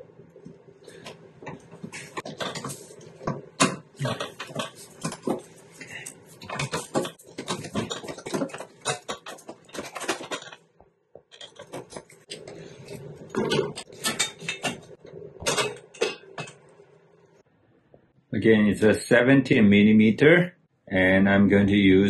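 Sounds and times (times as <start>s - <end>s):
tools clattering on engine parts: 6.4s - 10.7s, 13.3s - 16.6s.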